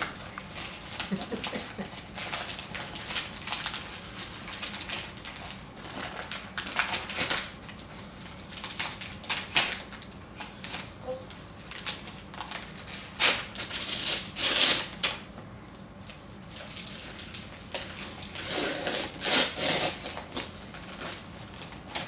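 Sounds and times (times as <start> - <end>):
wrapping paper tearing: 0.0 - 10.9, 11.7 - 15.2, 16.6 - 22.0.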